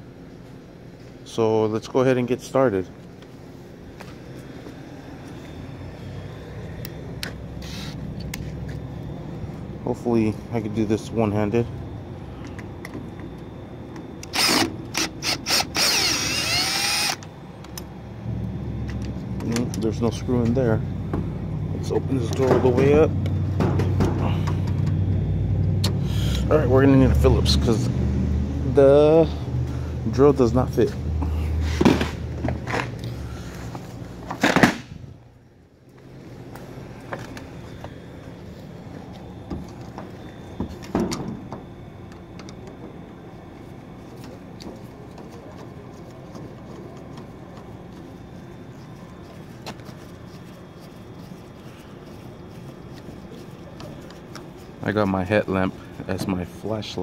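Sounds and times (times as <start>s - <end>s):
steady low hum: 0.0s - 57.0s
cordless drill driving screw: 14.2s - 17.2s.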